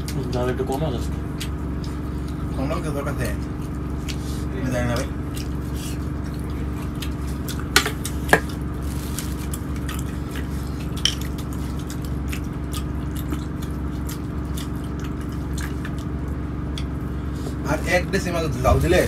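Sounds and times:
train carriage rumble: 0:17.4 - 0:19.0.

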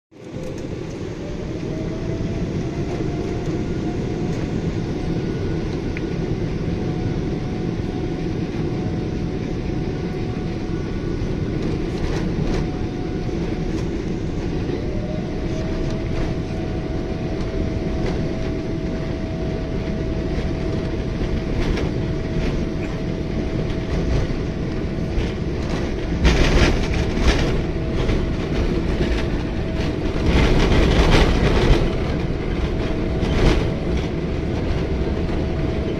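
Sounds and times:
jet engine roar: 0:00.1 - 0:35.9.

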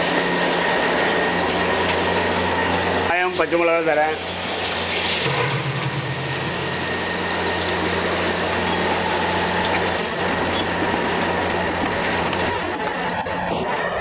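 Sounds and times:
mechanical hum and roar: 0:00.0 - 0:14.0
onions sizzling in hot oil: 0:04.1 - 0:10.2.

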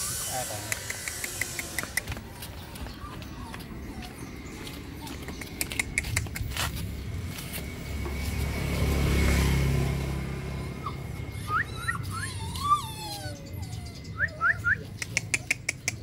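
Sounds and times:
vehicle engine passing by: 0:00.0 - 0:15.6
sharp clicks: 0:00.6 - 0:02.2, 0:15.0 - 0:16.0
high rising chirps: 0:09.6 - 0:15.0.

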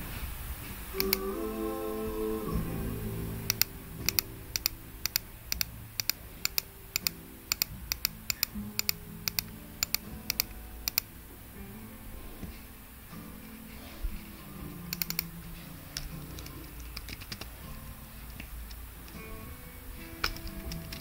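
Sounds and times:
laptop keys clicking: 0:03.5 - 0:11.1, 0:14.9 - 0:15.3, 0:16.4 - 0:17.5.

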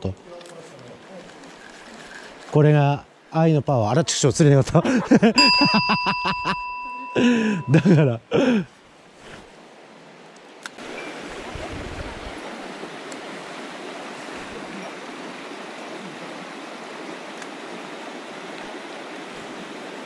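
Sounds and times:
stream rushing over stones: 0:09.2 - 0:20.0.

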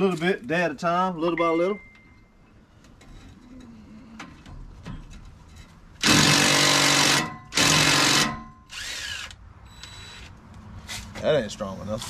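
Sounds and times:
impact wrench hammering: 0:06.0 - 0:08.8.

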